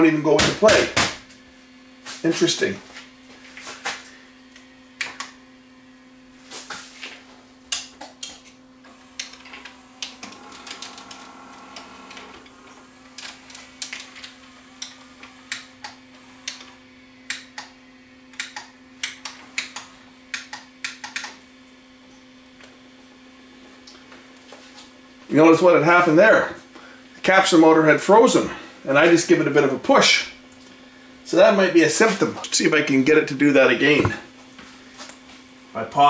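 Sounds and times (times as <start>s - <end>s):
steady hum: 0.0s - 36.0s
motor whirring: 8.8s - 17.3s.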